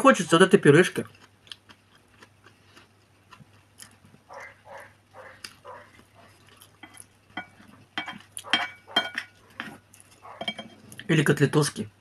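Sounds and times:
wet chewing: 1.0 - 11.1
spoon scraping ceramic plate: 6.8 - 11.0.

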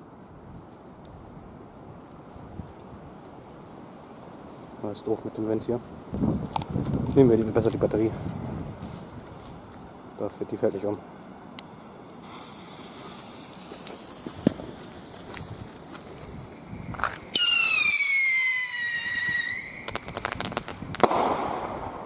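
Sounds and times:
sharp firework cracks: 12.2 - 16.1, 17.0 - 22.0
firework bang: 14.2 - 14.8, 17.3 - 22.0
whistling rocket whistle: 16.8 - 22.0.

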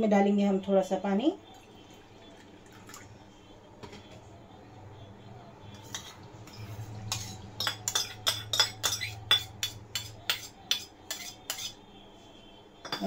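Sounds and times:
spoon clinking against steel bowl: 5.7 - 11.8.

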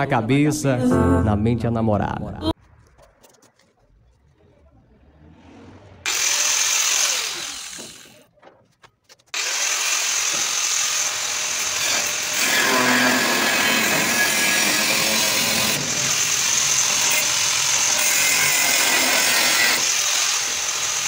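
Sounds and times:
angle grinder cutting steel: 6.0 - 8.2, 9.4 - 21.0.

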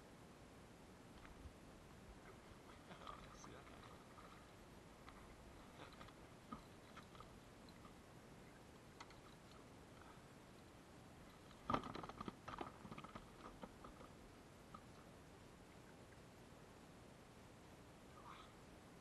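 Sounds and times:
gear handled in a kayak: 5.0 - 8.0, 11.4 - 14.9.

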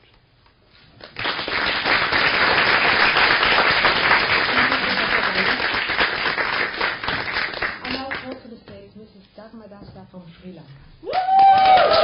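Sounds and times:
audience applauding: 1.0 - 8.3, 11.1 - 12.0.

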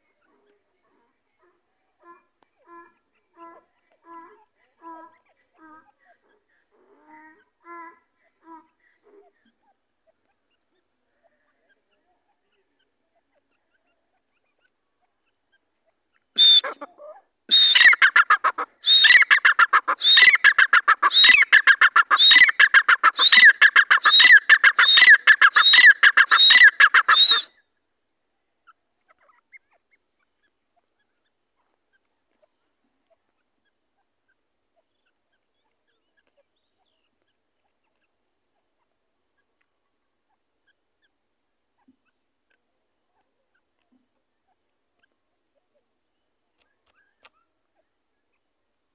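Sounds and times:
francolin calling: 7.1 - 27.7, 28.6 - 43.8.

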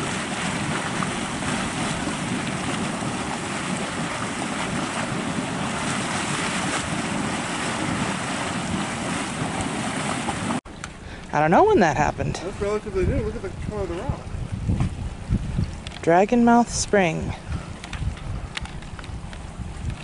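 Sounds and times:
steaming mud pool rushing: 0.0 - 10.6.

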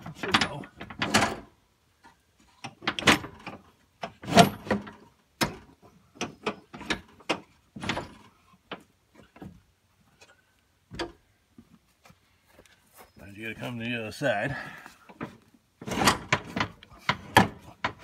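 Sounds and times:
metal clunks knocks and scrapes: 0.0 - 9.6, 10.2 - 11.2, 15.0 - 18.0.

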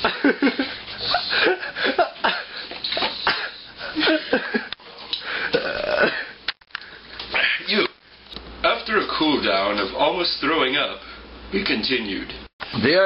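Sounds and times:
people laughing: 0.0 - 3.1, 3.8 - 4.8
person coughing and gagging: 1.4 - 4.7, 5.4 - 6.4.

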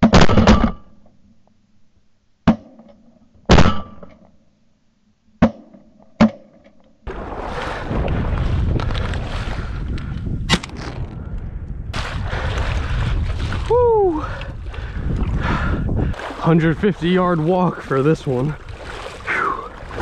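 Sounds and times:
shotgun shots: 3.5 - 4.0
wind and water rushing: 7.1 - 20.0.

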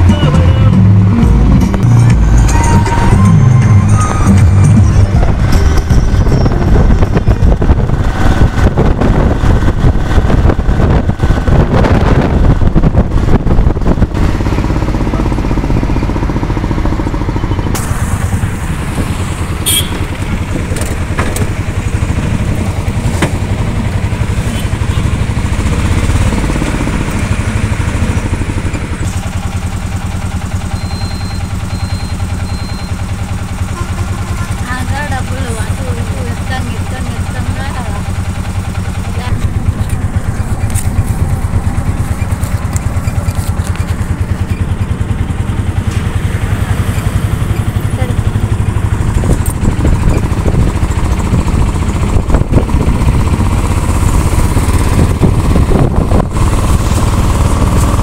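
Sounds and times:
auto-rickshaw engine buzzing: 0.0 - 58.0.

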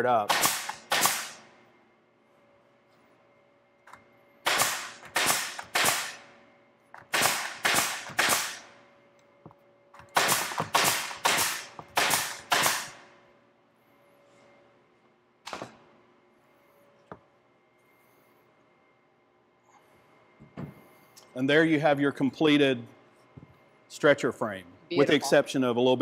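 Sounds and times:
nail gun firing: 0.2 - 1.4, 4.4 - 6.3, 7.0 - 8.7, 10.0 - 13.0.

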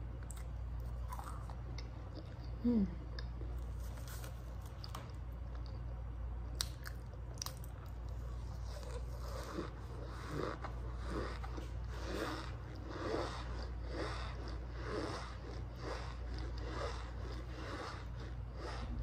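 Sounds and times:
squeaky crunchy chewing: 8.4 - 19.0.

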